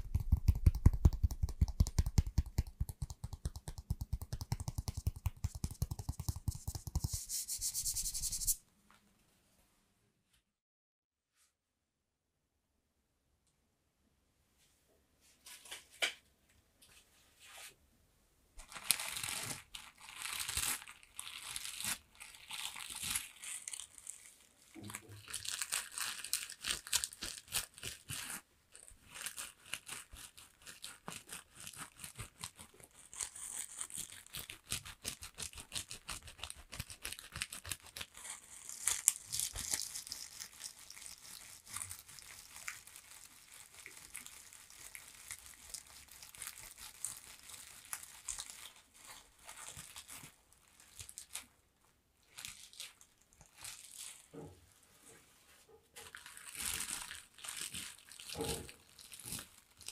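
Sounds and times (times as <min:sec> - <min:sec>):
brush bristles scratching: 0:03.8 - 0:08.6.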